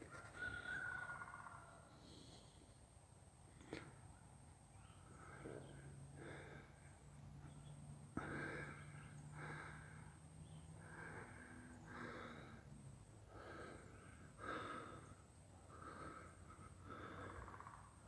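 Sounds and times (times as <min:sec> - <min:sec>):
faint breathing: 0:00.3 - 0:18.0.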